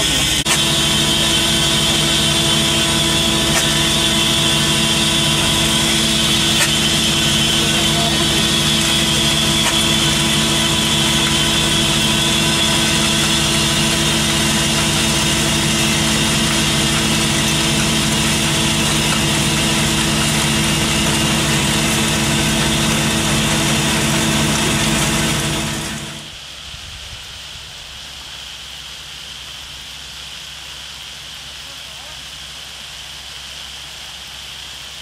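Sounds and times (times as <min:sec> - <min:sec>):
mixer motor hum: 0:00.0 - 0:26.4
cement powder rushing: 0:00.4 - 0:26.3.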